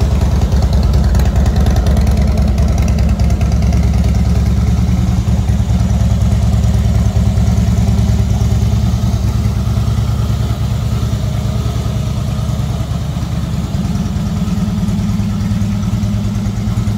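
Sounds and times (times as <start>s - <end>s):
motorcycle engine idling: 0.0s - 16.9s.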